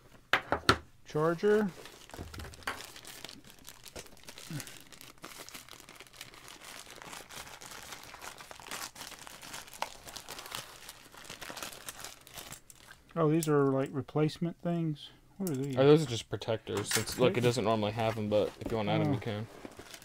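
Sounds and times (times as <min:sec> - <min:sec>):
plastic packaging crinkling: 0:01.7 - 0:13.1, 0:17.4 - 0:20.0.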